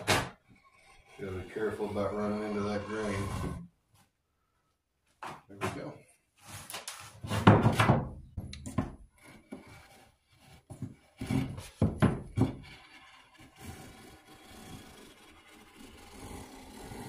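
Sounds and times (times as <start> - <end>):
knife scraping wood: 0.4 - 3.6, 9.0 - 17.0.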